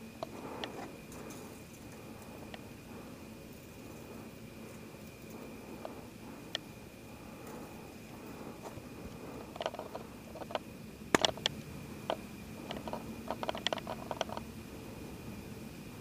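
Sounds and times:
handling clicks and taps: 0:09.5 - 0:14.4.

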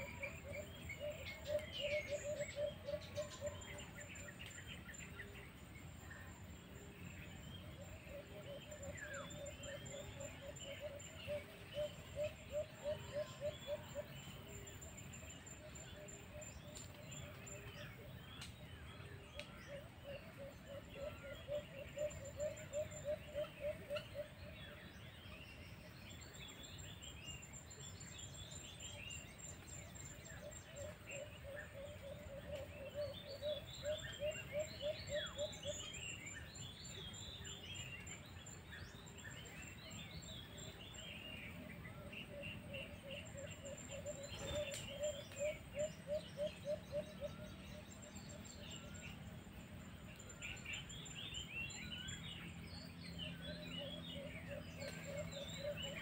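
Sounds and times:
bird low pulsing call: 0:00.0 - 0:05.4, 0:06.1 - 0:24.8, 0:29.0 - 0:56.0
small birds chirping: 0:00.0 - 0:56.0.

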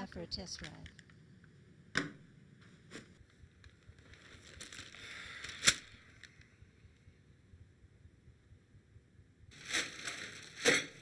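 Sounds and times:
newspaper pages rustling: 0:02.7 - 0:06.4, 0:09.5 - 0:11.0
newspaper snapping: 0:04.0 - 0:06.3, 0:09.5 - 0:11.0.

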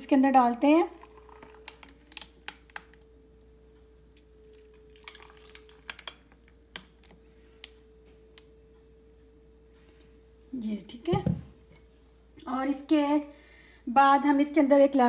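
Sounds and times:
faint steady hum: 0:00.0 - 0:15.0
liquid pouring: 0:00.9 - 0:01.8, 0:04.6 - 0:06.2
glass and ice clinking: 0:01.0 - 0:02.6, 0:04.8 - 0:06.3.

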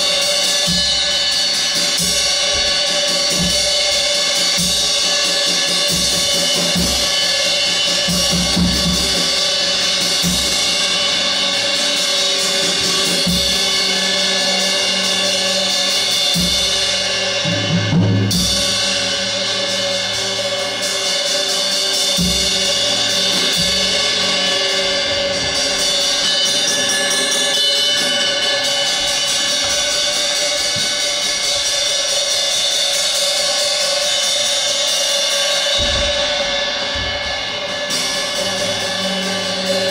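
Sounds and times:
ringing cymbals: 0:00.0 - 0:39.9
low drum hits: 0:35.8 - 0:38.6.

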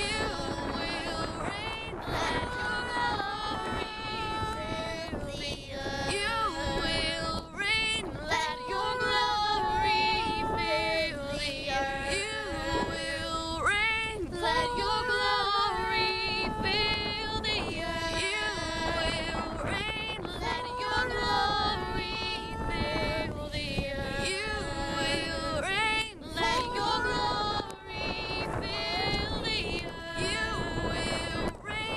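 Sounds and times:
girls singing in harmony: 0:00.0 - 0:31.9
wind buffeting microphone: 0:00.0 - 0:31.9.

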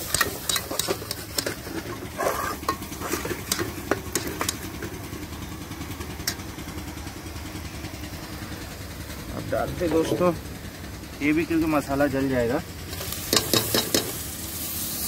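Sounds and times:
metal spoon scraping a pot: 0:00.0 - 0:05.0
masala sizzling: 0:00.0 - 0:09.2, 0:11.9 - 0:15.0.

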